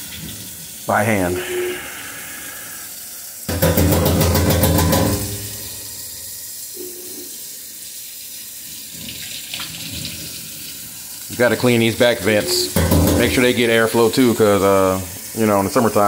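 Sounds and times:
faucet running into metal sink: 0:00.0 - 0:16.0
loud buzzing water spatter: 0:01.4 - 0:07.8.

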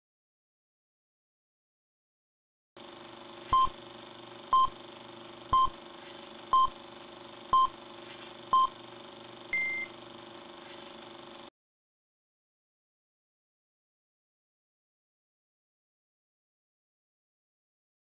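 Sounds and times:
countdown beeps: 0:05.5 - 0:05.7, 0:06.6 - 0:06.8, 0:07.6 - 0:07.8, 0:08.6 - 0:08.8, 0:09.5 - 0:09.9.

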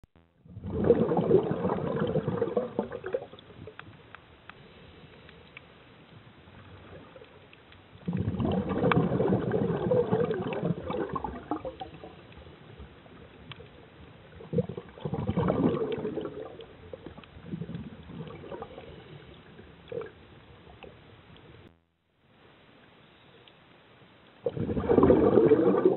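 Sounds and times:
faint steady hiss: 0:00.3 - 0:25.9
underwater bubbles gurgling: 0:00.4 - 0:04.2, 0:05.5 - 0:21.7, 0:24.4 - 0:25.9.

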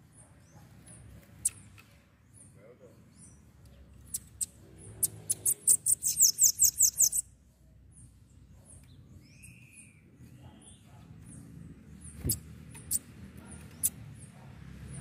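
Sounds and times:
faint bird chirps: 0:02.4 - 0:07.3
bird singing high sharp notes: 0:04.1 - 0:07.2.

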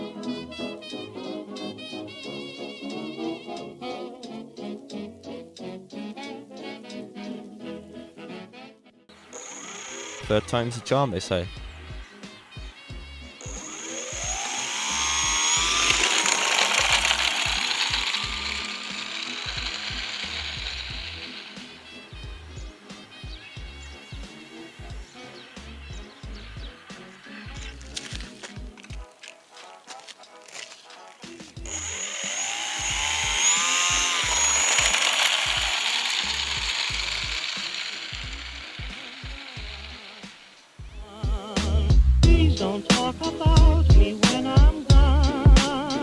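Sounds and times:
model airplane motor whine: 0:09.2 - 0:28.8, 0:31.5 - 0:40.8
background music with beat: 0:10.2 - 0:13.6, 0:20.9 - 0:31.8, 0:38.3 - 0:46.0.

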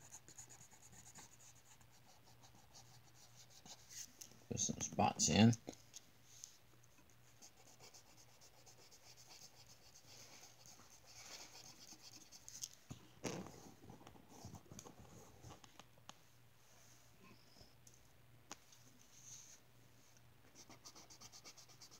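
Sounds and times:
marker scratching on paper: 0:07.4 - 0:12.5, 0:20.6 - 0:21.9.

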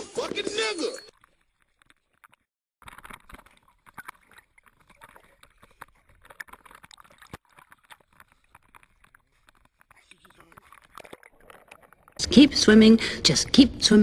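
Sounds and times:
water splashing and lapping: 0:00.0 - 0:13.2
dog paddling in water: 0:01.1 - 0:12.2.

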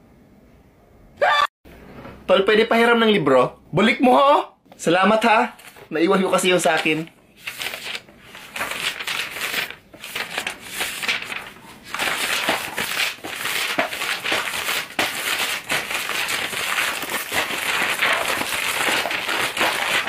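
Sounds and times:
book pages flipping: 0:05.6 - 0:06.0, 0:06.6 - 0:20.0
paper crinkling and crumpling: 0:05.6 - 0:20.0.

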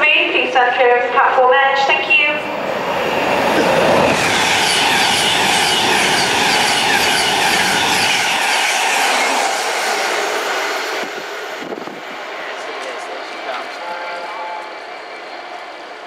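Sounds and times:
train low rumble: 0:00.0 - 0:16.0
train wheels clattering on rails: 0:03.4 - 0:15.9.

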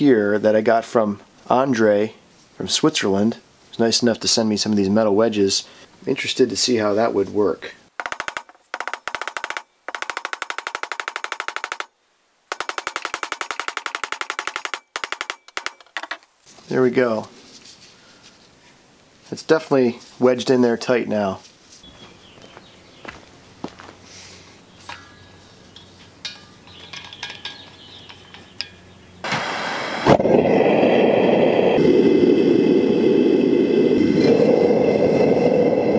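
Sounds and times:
rapid metal tapping: 0:08.0 - 0:11.9, 0:12.5 - 0:16.3, 0:25.7 - 0:28.9
gas hissing: 0:28.6 - 0:35.9
forge burner rushing: 0:29.2 - 0:35.9.

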